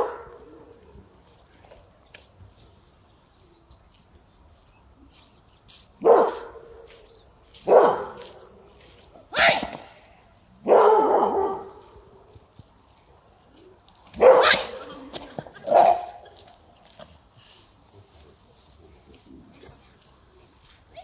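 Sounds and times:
dog barking: 0.0s - 0.6s, 6.0s - 6.9s, 7.6s - 8.4s, 10.6s - 12.0s, 14.2s - 15.0s, 15.6s - 16.3s.

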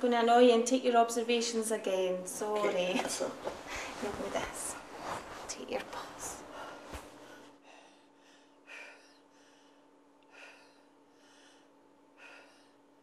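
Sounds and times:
low steady hum: 0.0s - 13.0s
quick breathing: 6.4s - 12.9s.

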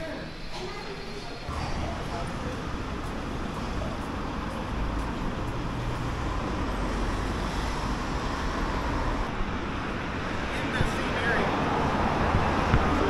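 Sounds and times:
vehicle rumble: 1.5s - 13.0s.

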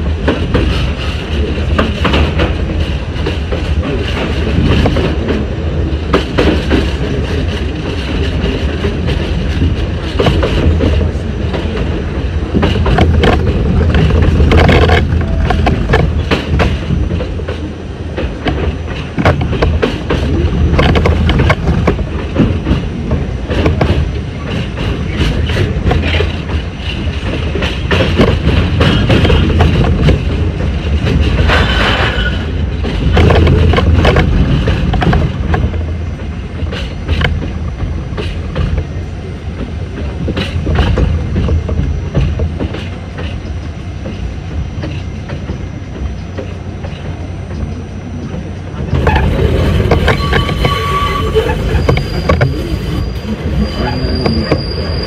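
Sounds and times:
rail joint clicks: 0.0s - 55.0s
train wheels rumbling on rail: 0.0s - 55.0s
high wheel squeal: 48.9s - 55.0s.

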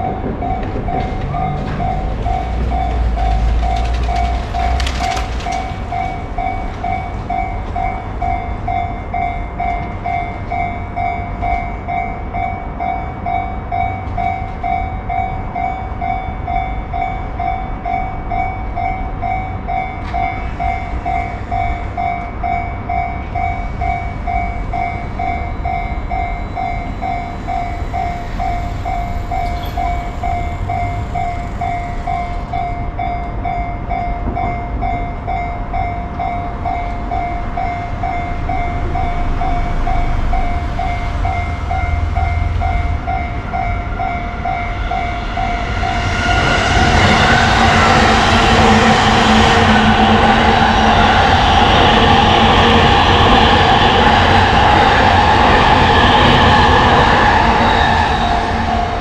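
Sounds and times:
low rumble: 0.0s - 6.5s
level crossing alarm beeping: 0.0s - 59.0s.

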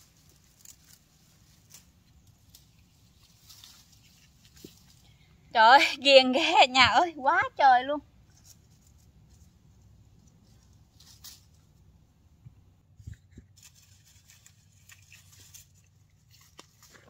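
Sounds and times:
leaves rustling and crackling: 0.0s - 5.2s, 8.2s - 11.9s, 13.5s - 17.0s
stems snapping: 13.6s - 17.0s.

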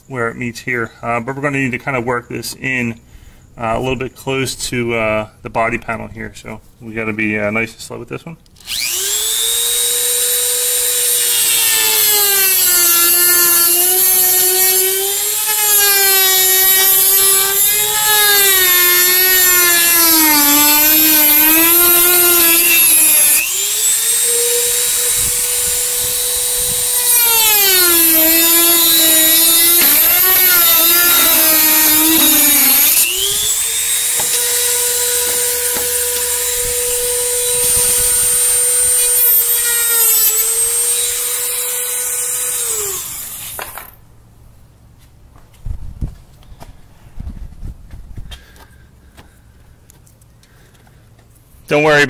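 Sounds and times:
rotary tool cutting plastic: 8.6s - 44.0s.

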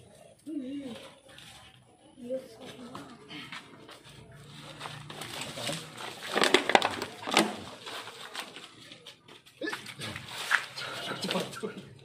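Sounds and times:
crunching and rustling of debris: 0.0s - 12.0s
plastic sack being handled: 4.5s - 11.5s.

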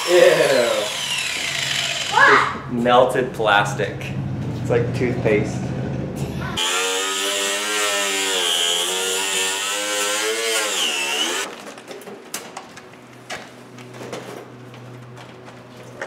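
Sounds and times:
angle grinder cutting plastic: 0.0s - 2.3s, 6.6s - 11.6s.

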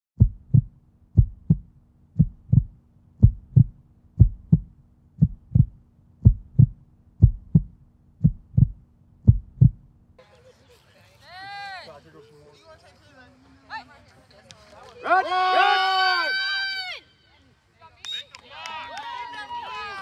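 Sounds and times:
heartbeat thumps: 0.2s - 10.0s.

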